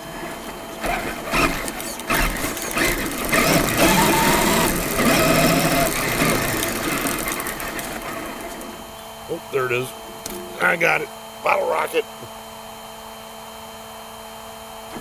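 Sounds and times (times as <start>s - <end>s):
toy truck motors whining: 0.0s - 8.9s.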